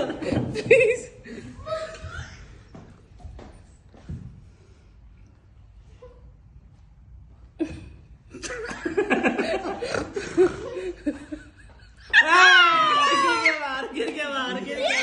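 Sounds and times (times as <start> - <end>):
people laughing: 0.0 - 2.4, 7.6 - 15.0.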